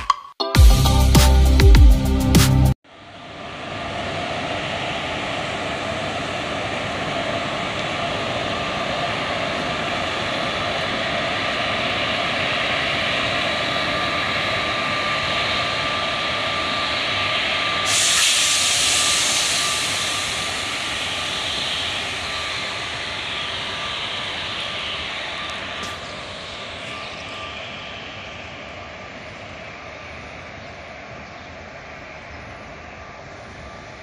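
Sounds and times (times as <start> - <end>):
train passing: 2.9 - 34.0
faint constant high tone: 3.0 - 34.0
loud hiss: 15.8 - 27.2.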